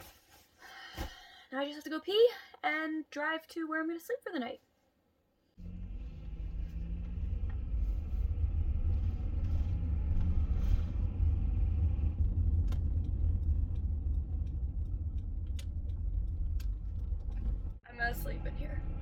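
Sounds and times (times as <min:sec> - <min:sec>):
road and engine rumble: 0:05.6 - 0:19.0.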